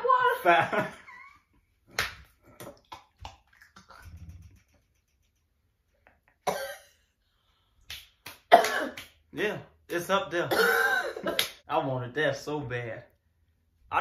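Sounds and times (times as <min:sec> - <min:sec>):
woman coughing: 0:06.5 - 0:07.0, 0:08.5 - 0:09.0, 0:10.5 - 0:11.5.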